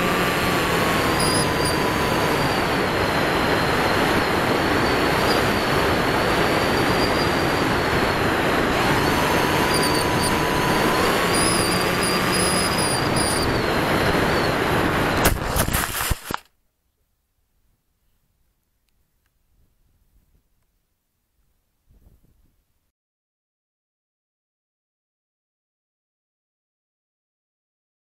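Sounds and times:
propeller motor whine: 0.0s - 15.3s.

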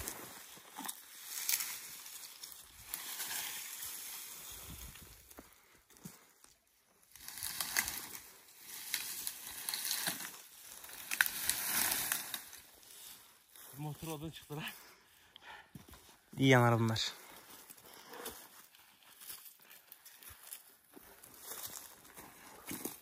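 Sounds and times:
twigs crackling and snapping: 0.0s - 12.8s
pine needles rustling: 0.0s - 15.0s, 16.0s - 23.0s.

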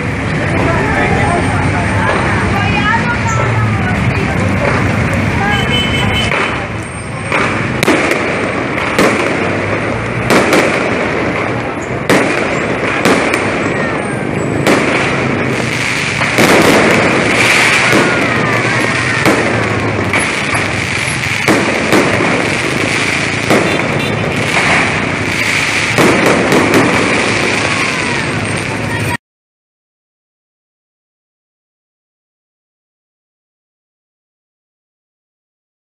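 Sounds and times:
fireworks bursting with bangs: 0.0s - 29.2s.

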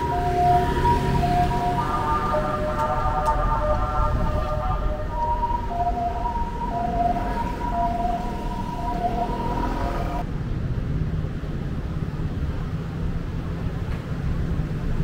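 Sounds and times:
held electronic tone: 0.0s - 10.2s
lower electronic tone: 0.0s - 10.2s
street ambience: 0.0s - 15.0s.

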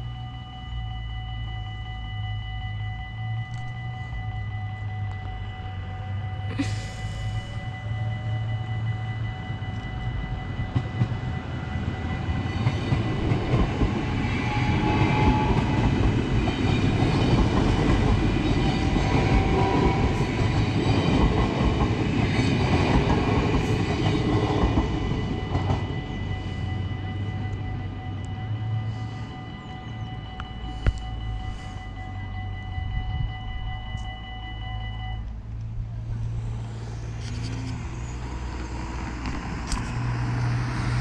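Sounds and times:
crossing warning bells ringing: 0.0s - 41.0s
train wheels clattering on rails: 9.7s - 26.6s.

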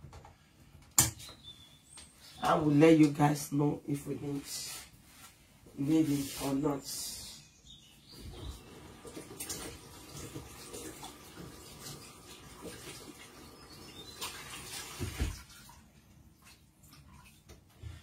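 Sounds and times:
water running and splashing: 8.3s - 17.7s.

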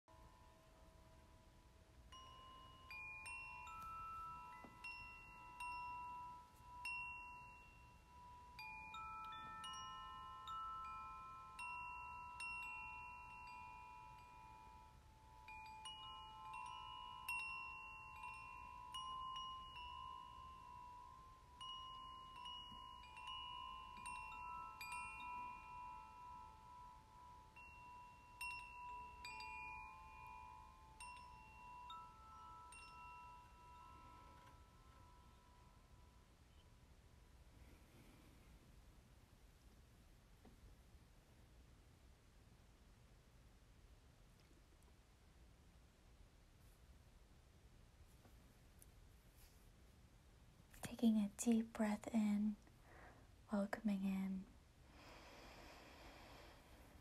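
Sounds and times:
wind chimes ringing: 0.1s - 36.8s.

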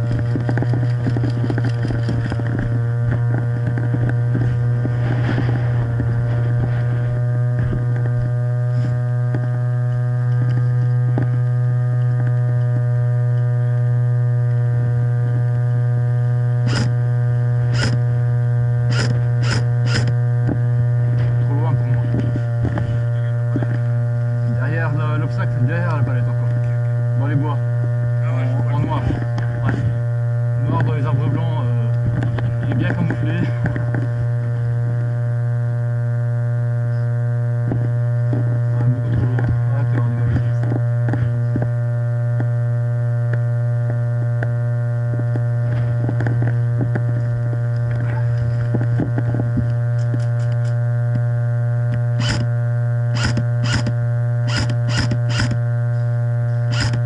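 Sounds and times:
loud electrical hum: 0.0s - 57.0s
sharp noisy burst: 16.6s - 16.9s, 17.6s - 18.0s, 18.9s - 20.2s, 53.1s - 53.9s, 56.7s - 57.0s.

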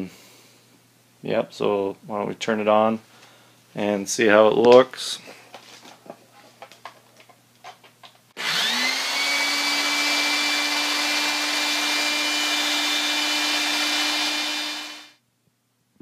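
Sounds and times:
electric drill motor whine: 8.4s - 15.2s.

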